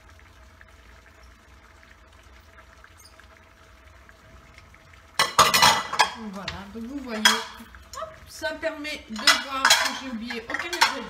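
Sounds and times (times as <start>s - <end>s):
utensil clattering against bowl: 9.2s - 11.0s.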